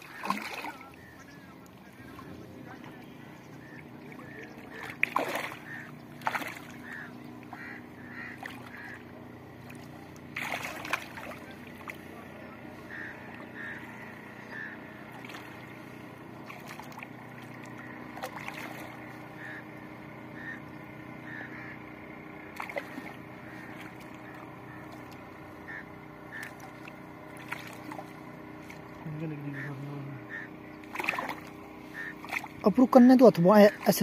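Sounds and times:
hands splashing in water: 0.0s - 0.9s, 4.7s - 7.0s, 9.7s - 12.0s, 16.4s - 19.0s, 26.4s - 28.9s, 30.8s - 31.6s, 32.2s - 32.6s
low hum: 0.0s - 34.0s.

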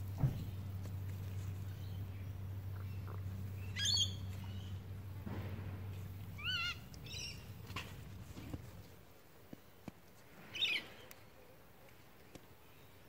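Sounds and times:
steady low hum: 0.0s - 9.5s
birds calling: 0.0s - 9.8s.

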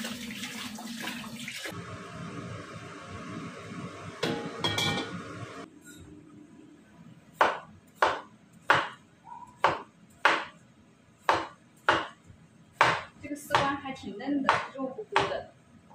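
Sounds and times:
cleaver chopping on wooden board: 12.8s - 13.7s.

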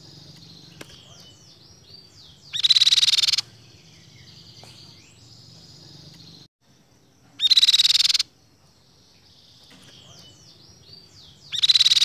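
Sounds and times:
bird rattling trill: 2.5s - 3.5s, 7.4s - 8.3s, 11.5s - 12.0s
whistled bird notes: 7.4s - 8.3s, 9.1s - 12.0s.

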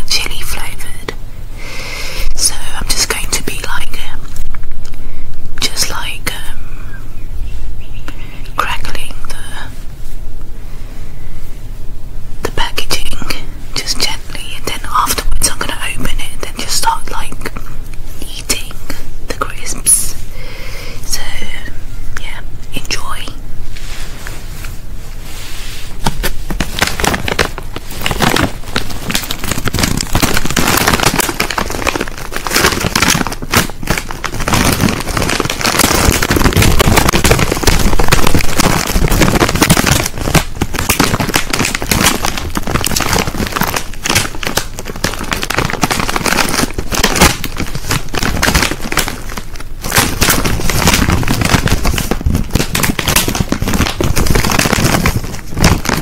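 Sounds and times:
crisp packet crinkling: 12.6s - 20.2s, 25.9s - 56.0s.

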